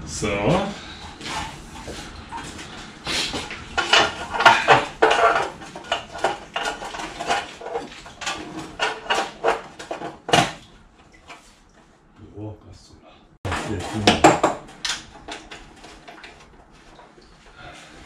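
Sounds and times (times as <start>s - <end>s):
sheet metal clanking: 3.4s - 10.7s.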